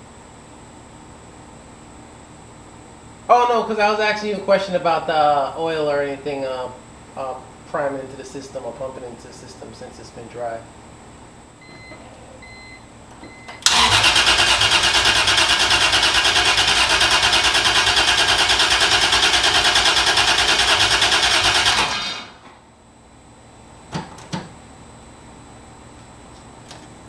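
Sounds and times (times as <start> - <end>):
engine cranking on starter: 13.6 - 22.4.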